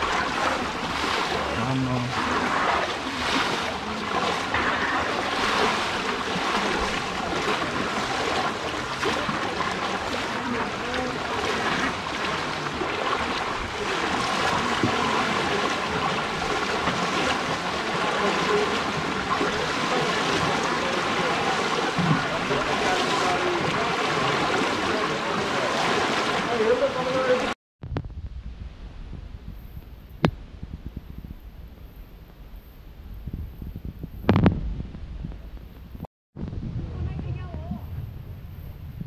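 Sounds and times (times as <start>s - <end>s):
water rushing: 0.0s - 27.6s.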